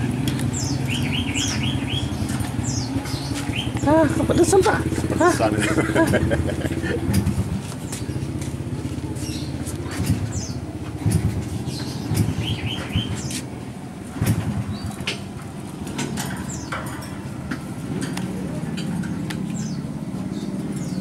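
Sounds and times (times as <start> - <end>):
clicks against metal cage bars: 0.1 - 3.9, 9.7 - 21.0
bird chirps: 0.2 - 4.0, 9.2 - 13.5.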